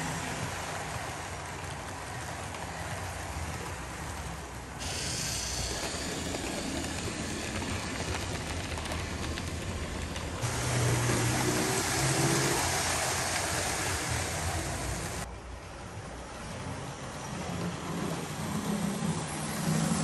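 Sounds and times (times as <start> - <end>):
model trains whirring and rattling: 0.0 - 20.0.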